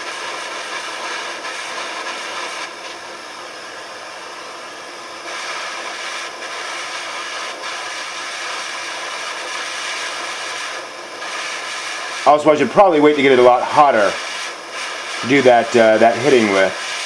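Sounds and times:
blowtorch hissing: 0:00.0 - 0:17.0.

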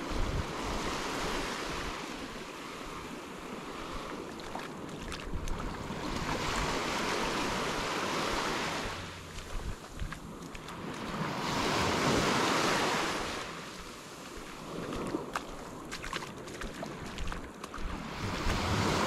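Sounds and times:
small waves breaking on sand: 0:00.0 - 0:19.0
wind buffeting microphone: 0:00.0 - 0:19.0.

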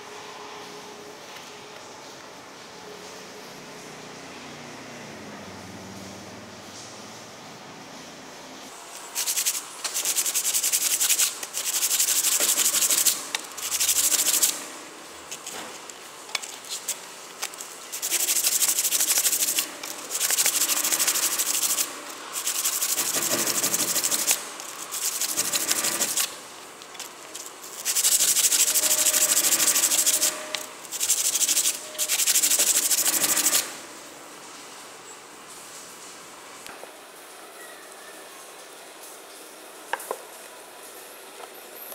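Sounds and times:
hand sanding steel blade: 0:09.0 - 0:33.8.

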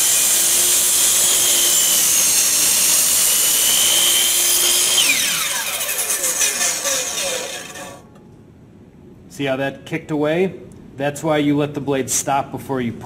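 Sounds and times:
miter saw cutting wood: 0:00.0 - 0:08.1
saw blade spinning down: 0:00.0 - 0:08.1.

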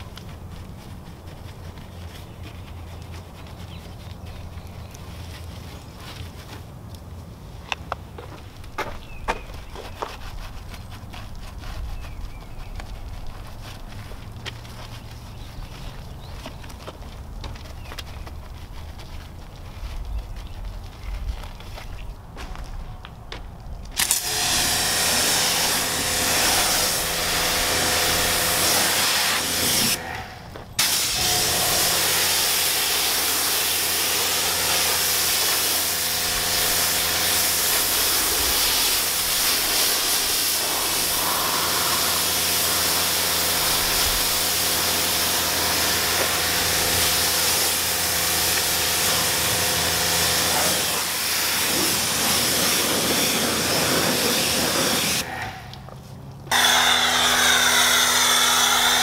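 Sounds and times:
pressure washer spray hissing: 0:24.0 - 0:30.2, 0:30.8 - 0:55.3, 0:56.5 - 0:59.0
washer motor and pump humming: 0:56.6 - 0:59.0.

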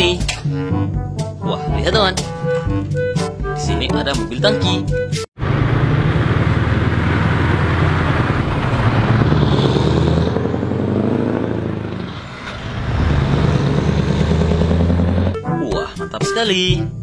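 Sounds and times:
truck diesel engine passing: 0:05.4 - 0:15.4.

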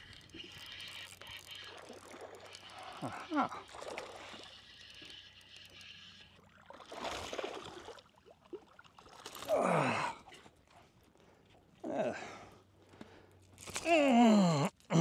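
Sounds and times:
man sighing: 0:13.8 - 0:15.0.

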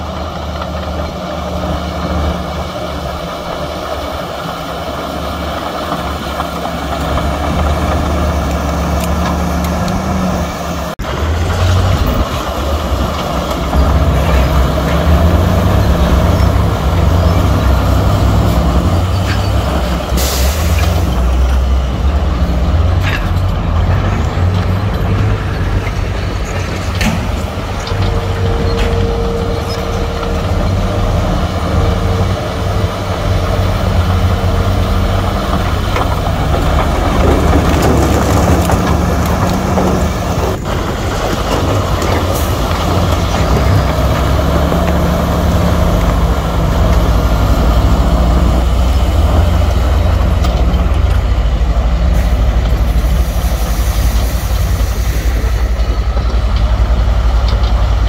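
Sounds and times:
heavy diesel machinery running: 0:00.0 - 0:58.0.

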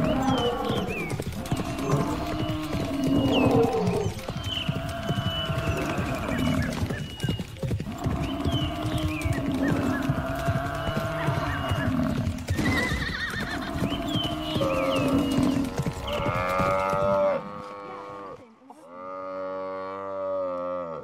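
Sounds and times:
lions fighting: 0:00.0 - 0:06.8
buffalo herd commotion: 0:00.0 - 0:18.2.

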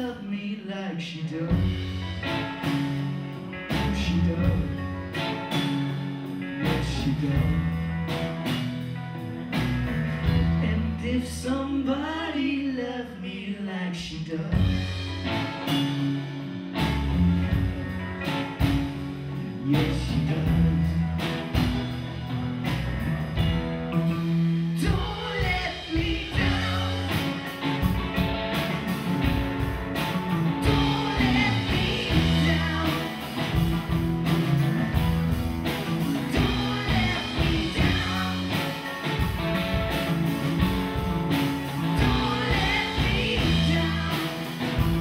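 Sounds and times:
bass guitar: 0:00.0 - 0:45.0
electric guitar: 0:00.0 - 0:45.0
drum kit: 0:01.5 - 0:10.9, 0:14.5 - 0:45.0
lead singer singing: 0:03.7 - 0:05.6, 0:10.5 - 0:16.3, 0:19.4 - 0:21.4, 0:24.7 - 0:28.2, 0:30.5 - 0:34.0, 0:35.9 - 0:39.5, 0:41.7 - 0:45.0
keyboard playing: 0:25.3 - 0:45.0.

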